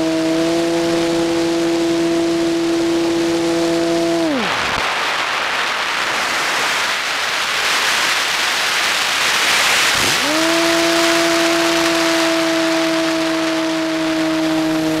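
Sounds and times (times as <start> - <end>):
model airplane motor whine: 0.0 - 4.8, 9.7 - 15.0
wind rushing over microphone: 0.0 - 15.0.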